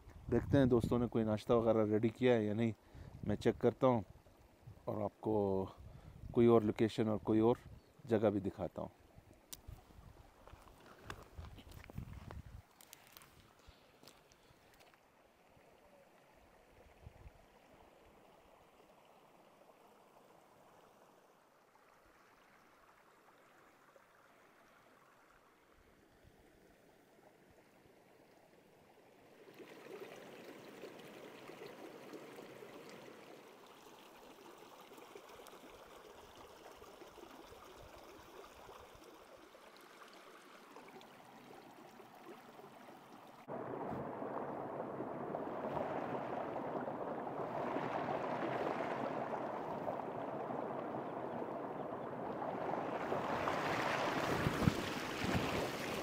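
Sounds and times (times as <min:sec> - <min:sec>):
stream running over stones: 0:00.0 - 0:56.0
small cascade: 0:28.7 - 0:56.0.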